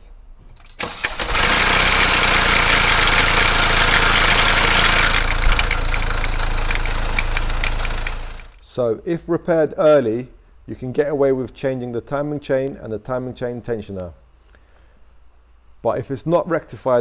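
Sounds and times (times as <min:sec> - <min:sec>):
diesel engine cranking: 0:00.6 - 0:08.6
diesel engine rattling and idling: 0:00.8 - 0:08.6.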